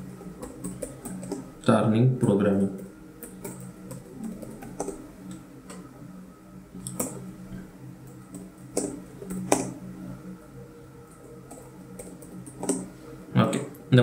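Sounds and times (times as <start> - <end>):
computer keyboard typing: 0.0 - 1.6, 2.2 - 5.8, 6.8 - 7.2, 8.0 - 9.8, 11.1 - 12.9.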